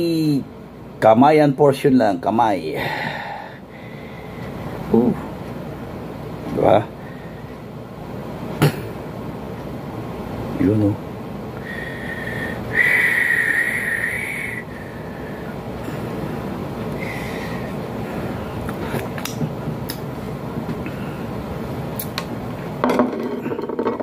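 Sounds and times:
air conditioner hum: 0:00.0 - 0:24.0
high whistling tone: 0:11.6 - 0:14.8.

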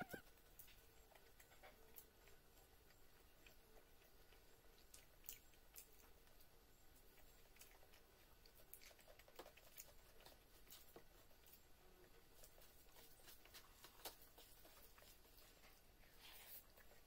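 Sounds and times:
chewing: 0:00.0 - 0:17.0
eating clicks and smacks: 0:00.5 - 0:11.6.

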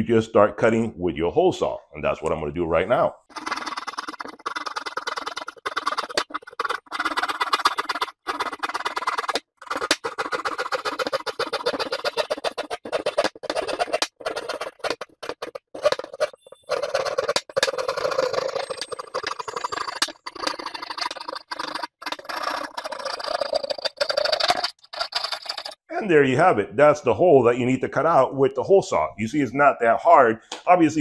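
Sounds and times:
hand saw rasping through drywall: 0:03.3 - 0:25.8.

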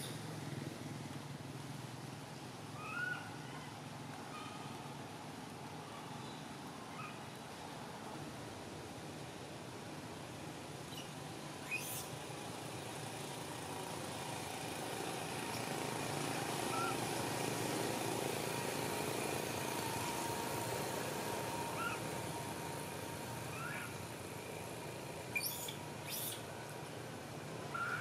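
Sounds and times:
low vehicle hum: 0:10.6 - 0:28.0
high chirps: 0:25.3 - 0:26.5.

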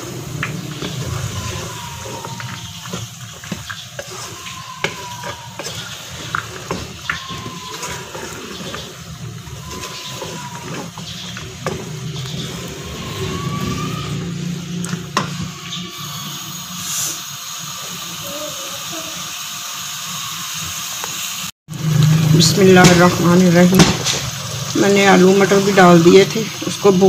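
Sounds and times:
wooden spoon scraping pot: 0:00.0 - 0:13.9
food sizzling: 0:00.0 - 0:27.0.

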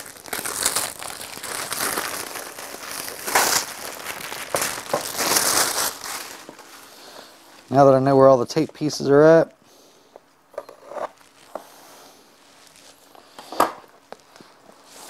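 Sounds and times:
cardboard and paper rustling: 0:00.0 - 0:06.9.

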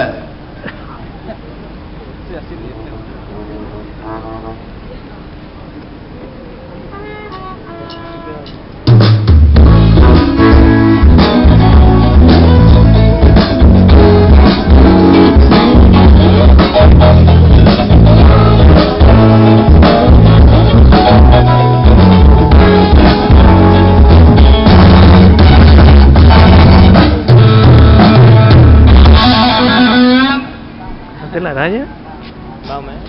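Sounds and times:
bass: 0:00.0 - 0:30.8
drum kit: 0:07.3 - 0:30.5
electric guitar: 0:09.0 - 0:31.0.

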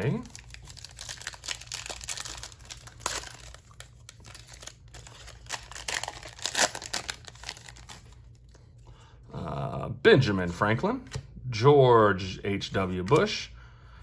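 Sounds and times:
plastic wrapper tearing and crinkling: 0:00.0 - 0:08.4.

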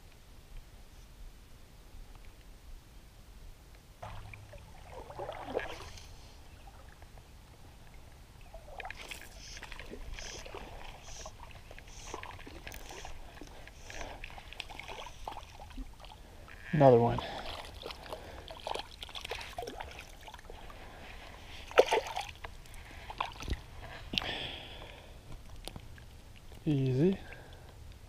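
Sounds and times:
water sloshing: 0:04.0 - 0:27.7
fishing line rustling: 0:08.7 - 0:16.2.

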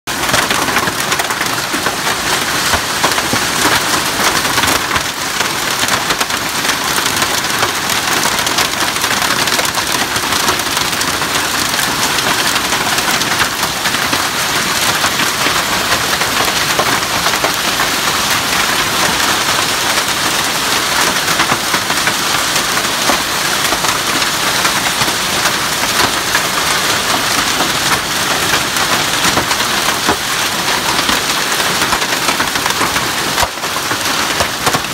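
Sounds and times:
heavy rain and hail pelting: 0:00.1 - 0:34.9.

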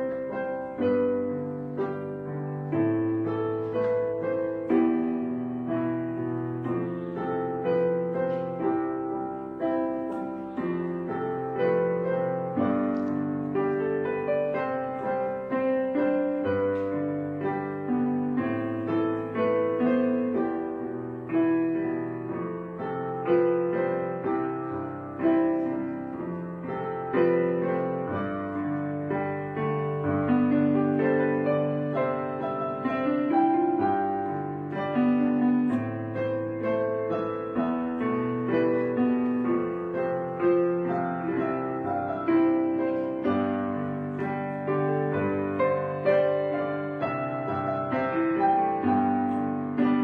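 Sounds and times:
slow soft piano: 0:00.0 - 0:50.0.

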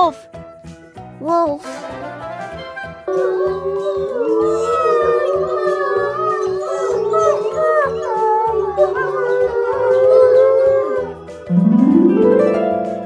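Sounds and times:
light background music: 0:00.0 - 0:13.0
wolves howling: 0:03.0 - 0:11.5.

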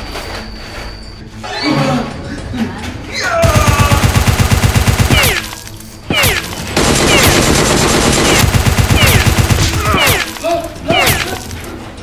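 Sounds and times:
machine-gun fire bursts: 0:03.4 - 0:05.6, 0:06.2 - 0:10.4.

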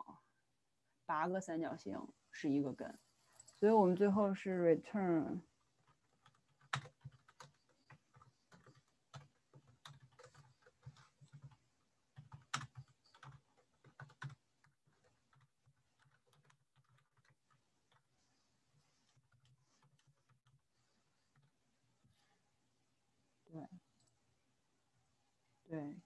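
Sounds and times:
typing on keyboard: 0:05.8 - 0:18.2, 0:18.8 - 0:20.7.

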